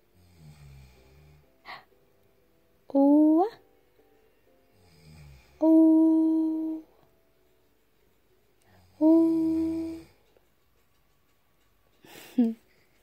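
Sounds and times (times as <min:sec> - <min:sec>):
person humming: 0:02.9 - 0:03.6, 0:05.6 - 0:07.0, 0:08.8 - 0:10.2.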